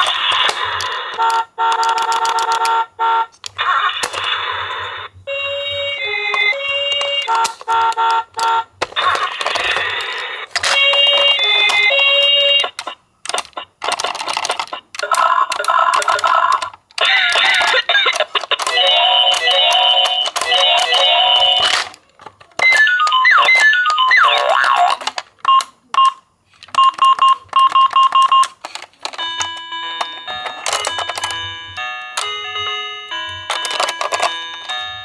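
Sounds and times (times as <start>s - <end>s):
toy siren sound effects: 3.5s - 12.9s, 15.1s - 21.9s, 22.6s - 25.0s.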